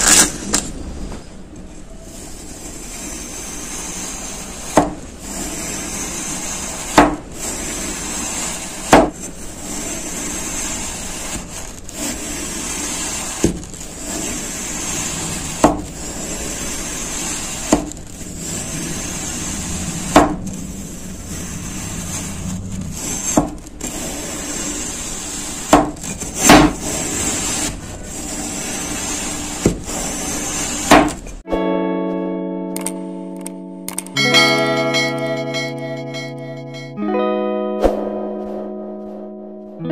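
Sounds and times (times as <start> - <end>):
steady hiss: 1.9 - 31.4
metal blade cutting sand: 2.1 - 30.9
sharp knock: 20.1 - 20.4.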